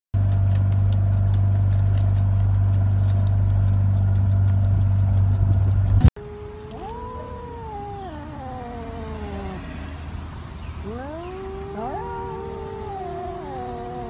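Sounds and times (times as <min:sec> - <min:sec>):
motorboat engine running: 0:00.2 - 0:06.1
cat yowling: 0:06.2 - 0:10.2, 0:10.8 - 0:14.0.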